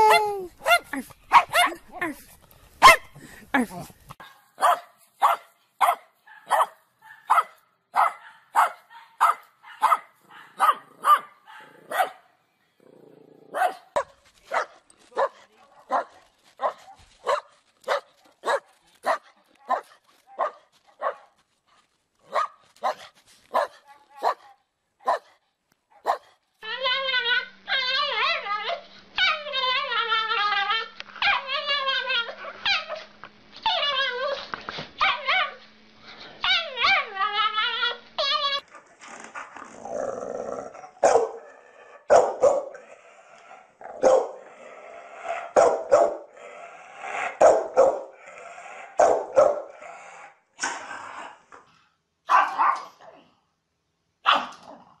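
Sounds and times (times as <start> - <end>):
background noise: 0.0 - 55.0
dogs barking: 0.6 - 1.8, 2.8 - 3.2, 4.2 - 12.3, 13.5 - 21.3, 22.3 - 26.3, 41.0 - 41.5, 42.1 - 42.8, 44.0 - 44.4, 45.4 - 46.4, 47.2 - 48.2, 49.0 - 49.8, 52.3 - 52.9.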